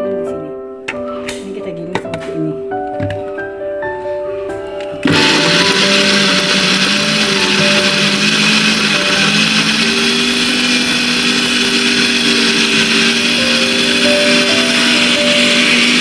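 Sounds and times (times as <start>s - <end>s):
blender motor whine: 5.0s - 16.0s.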